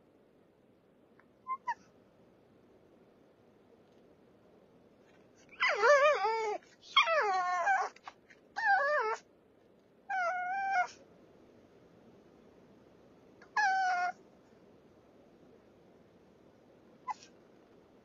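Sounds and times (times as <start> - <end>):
dog whining and crying: 1.5 - 1.9, 5.5 - 9.2, 10.1 - 11.0, 13.4 - 14.2, 17.0 - 17.3.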